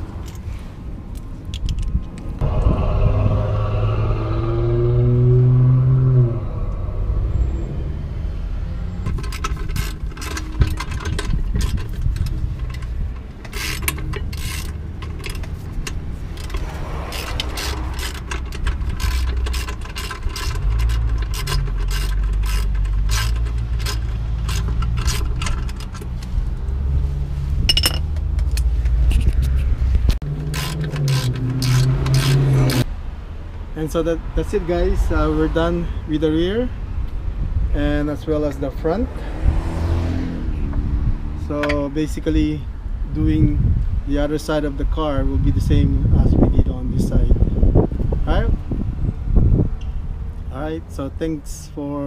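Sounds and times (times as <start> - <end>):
steady low rumble: 0.0 - 39.0
socket ratchet clicking: 9.1 - 26.3, 30.3 - 32.9.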